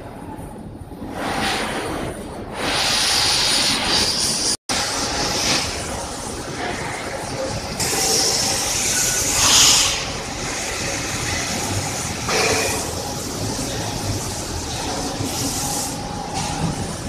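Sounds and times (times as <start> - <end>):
heavy factory machinery din: 0.0 - 17.0
loud hiss: 7.8 - 13.8.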